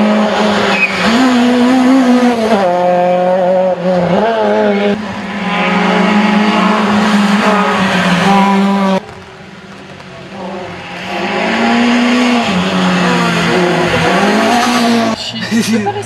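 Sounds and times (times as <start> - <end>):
rally car engines revving: 0.0 - 16.0
tyre squeal: 0.7 - 1.3.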